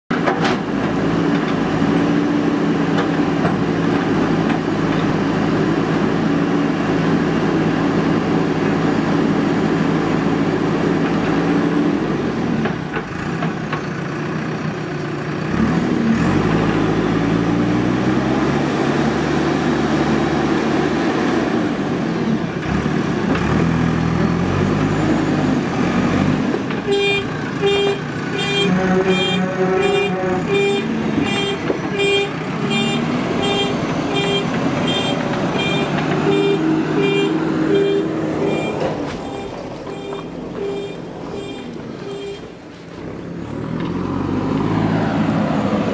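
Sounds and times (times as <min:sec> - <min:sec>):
backhoe diesel engine under load: 0:00.1 - 0:45.9
repeated beeping: 0:30.6 - 0:42.6.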